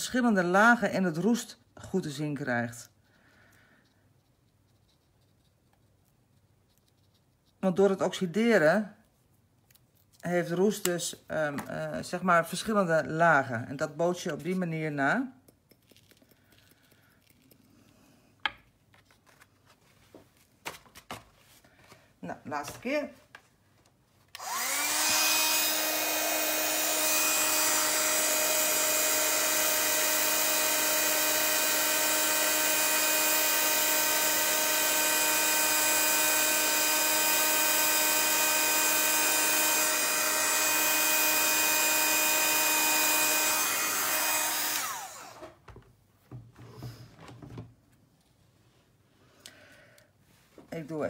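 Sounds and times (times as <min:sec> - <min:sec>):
heat tool fan whining: 0:24.3 - 0:45.6.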